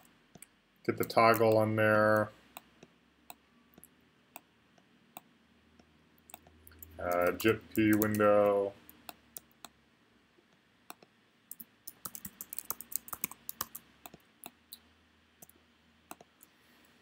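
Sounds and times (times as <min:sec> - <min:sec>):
keyboard typing: 0:00.0 - 0:04.5, 0:05.2 - 0:09.7, 0:10.9 - 0:14.8, 0:15.4 - 0:16.4
mouse clicks: 0:10.9 - 0:14.8, 0:15.4 - 0:16.5.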